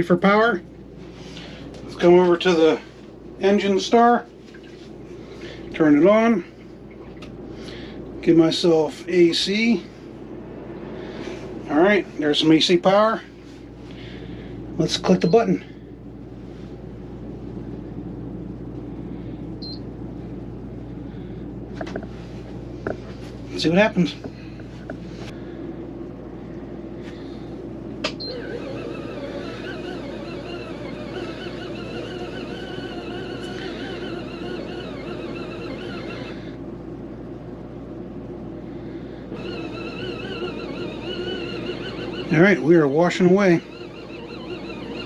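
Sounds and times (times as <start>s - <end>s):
washing machine motor whine: 0.0s - 26.6s, 27.2s - 45.0s
washing machine motor running: 27.2s - 36.7s, 39.2s - 45.0s.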